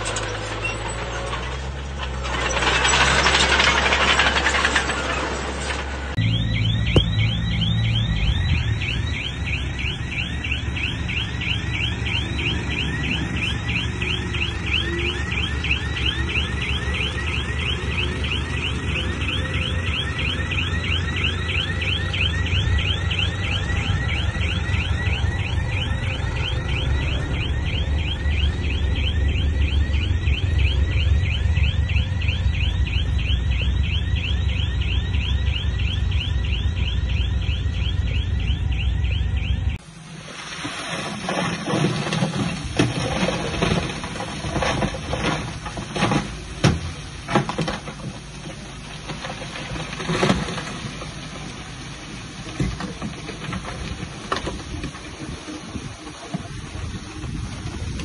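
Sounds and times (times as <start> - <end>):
rhythmic high-pitched squeal: 0.0 - 39.8
bulldozer engine rumble: 0.0 - 58.0.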